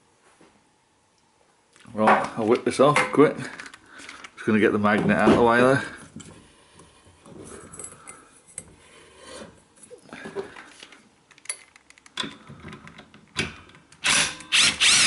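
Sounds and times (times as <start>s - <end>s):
power drill whirring: 14.0s - 15.0s.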